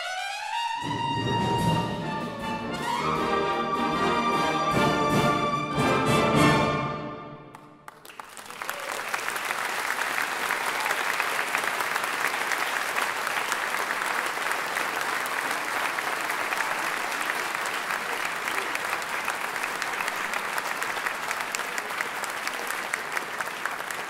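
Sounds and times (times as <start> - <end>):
brass chord: 0.0 - 7.6
audience applause: 7.5 - 24.0.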